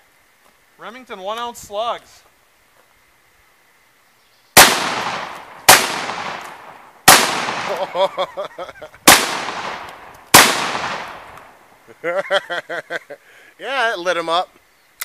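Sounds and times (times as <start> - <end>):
shotgun blasts: 4.6 - 8.1, 9.0 - 11.6.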